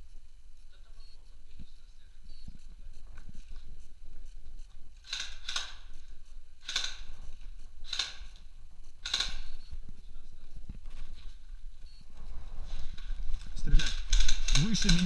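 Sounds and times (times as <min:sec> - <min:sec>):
airsoft rifle shots: 0:05.0 - 0:06.0, 0:06.6 - 0:07.2, 0:07.8 - 0:08.4, 0:09.0 - 0:09.6, 0:13.7 - 0:15.0.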